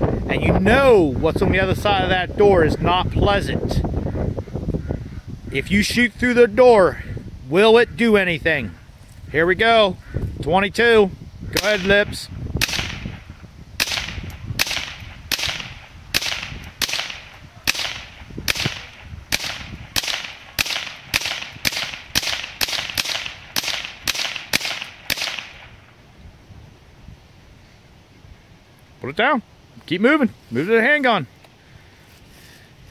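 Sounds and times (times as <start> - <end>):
rifle shots: 11.6 - 25.9.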